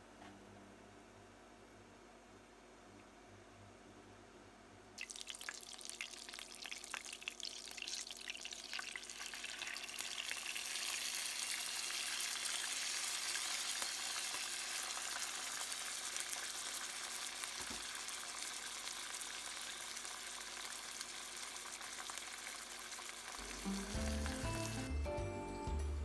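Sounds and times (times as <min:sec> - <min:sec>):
sauce sizzling in hot pan: 0:05.0 - 0:25.0.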